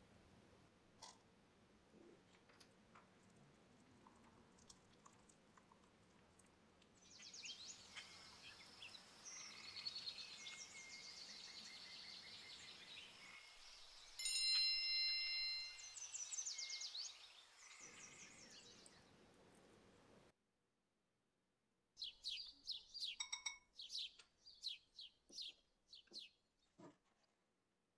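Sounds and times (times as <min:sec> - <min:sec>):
small birds chirping: 0:04.0 - 0:19.8, 0:22.0 - 0:26.4
bell-like chime: 0:14.2 - 0:16.1.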